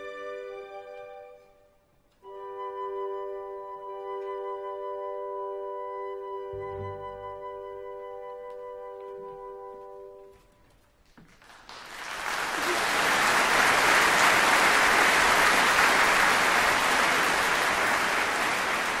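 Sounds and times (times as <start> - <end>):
audience applauding: 11.1 - 19.0.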